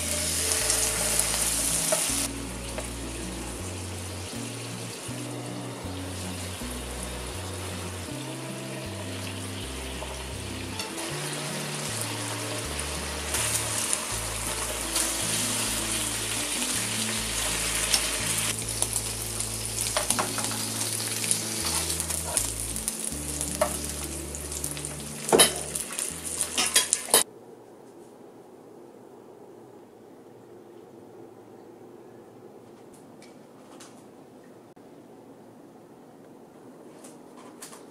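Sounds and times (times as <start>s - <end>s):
meat sizzling in a frying pan: 0.0s - 8.4s, 9.3s - 27.2s.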